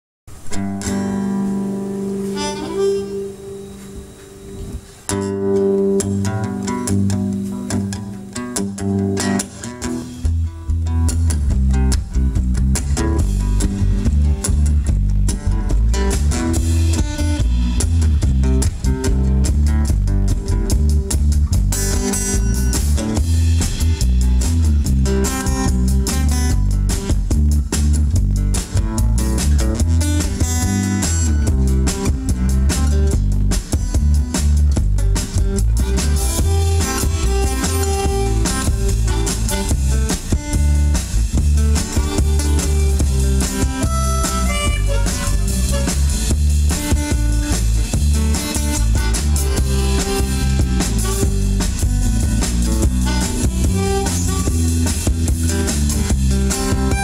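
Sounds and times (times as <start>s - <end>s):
long reedy held notes: 0.3s - 10.0s, 35.8s - 57.0s
acoustic guitar: 0.3s - 57.0s
drum kit beat: 0.3s - 57.0s
electric bass: 0.3s - 57.0s.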